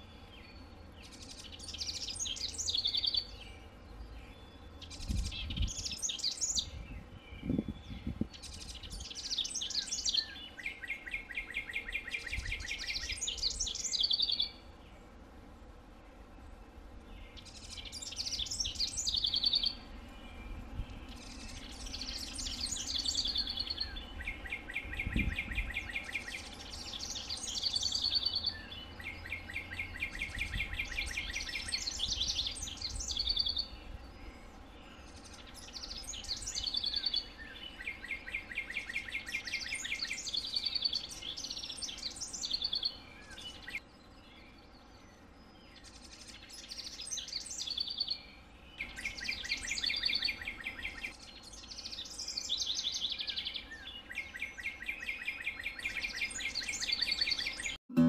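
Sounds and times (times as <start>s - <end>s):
wren singing trills: 0.0s - 15.0s, 16.4s - 58.0s.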